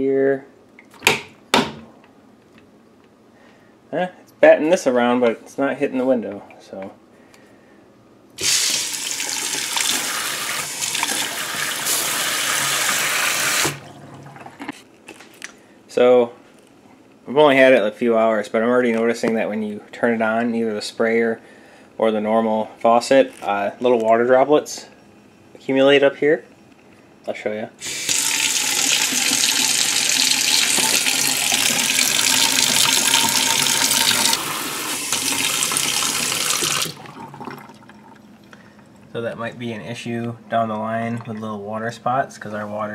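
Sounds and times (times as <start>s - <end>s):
faucet water running into steel sink: 8.4s - 13.8s, 27.8s - 38.2s.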